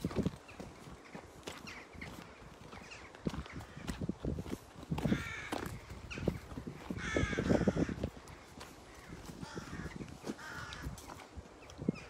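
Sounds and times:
wind buffeting microphone: 0:00.0 - 0:12.0
crow cawing: 0:05.0 - 0:11.0.

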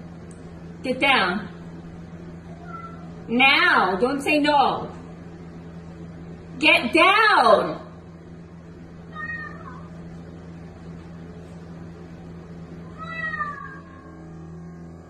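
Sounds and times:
cat meowing: 0:02.5 - 0:03.1, 0:09.1 - 0:09.9, 0:12.9 - 0:14.2.

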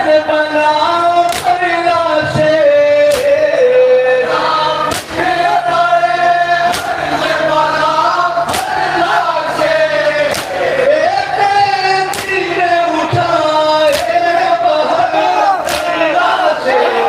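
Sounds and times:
men chanting in unison: 0:00.0 - 0:17.0
chest-beating slaps: 0:03.1 - 0:03.4, 0:04.9 - 0:05.2, 0:06.7 - 0:07.0, 0:08.5 - 0:08.8, 0:10.3 - 0:10.6, 0:12.1 - 0:12.4, 0:13.9 - 0:14.2, 0:15.6 - 0:16.0.

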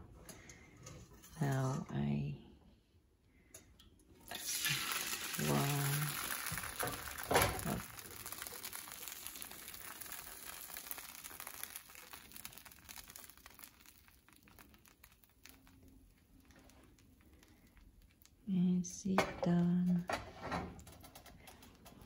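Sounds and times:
batter sizzling in hot oil: 0:04.2 - 0:18.5.

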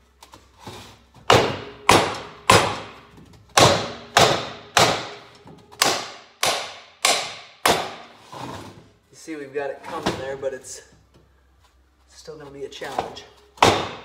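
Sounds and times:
rubber mallet striking metal: 0:01.3 - 0:08.1, 0:13.6 - 0:14.0.

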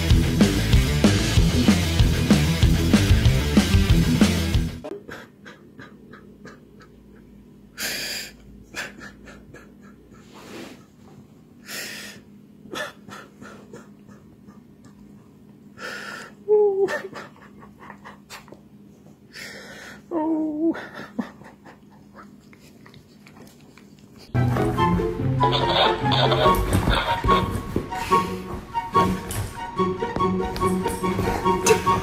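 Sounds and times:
man sobbing: 0:08.7 - 0:10.2, 0:12.7 - 0:14.9, 0:16.3 - 0:18.5, 0:20.0 - 0:22.5
gasping sniffling breaths: 0:19.2 - 0:20.1
dog sniffing and licking: 0:22.2 - 0:24.4.

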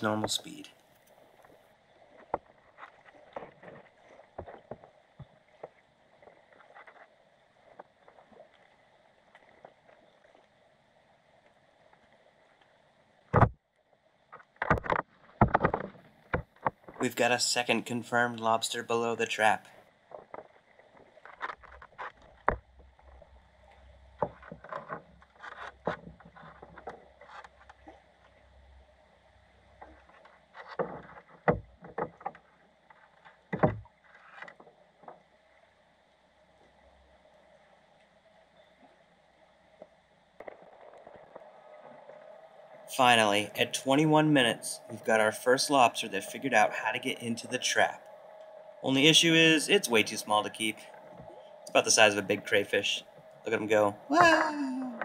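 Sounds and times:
muffled underwater knocks and clicks: 0:00.0 - 0:07.1, 0:13.3 - 0:13.6, 0:14.3 - 0:17.1, 0:20.1 - 0:23.3, 0:24.2 - 0:28.4, 0:29.8 - 0:35.3, 0:39.8 - 0:42.2
underwater rumble: 0:00.0 - 0:55.0.

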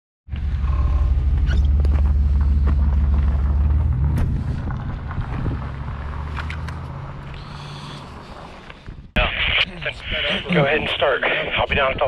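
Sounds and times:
van engine humming: 0:00.3 - 0:08.9.

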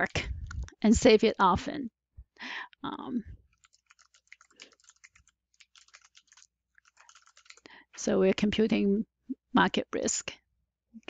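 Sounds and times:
keyboard typing: 0:03.4 - 0:07.7.

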